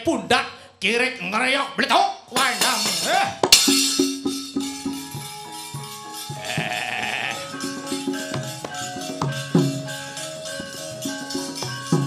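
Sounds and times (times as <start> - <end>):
drum: 2.4 - 7.2
sharp metallic clattering: 2.4 - 9.5.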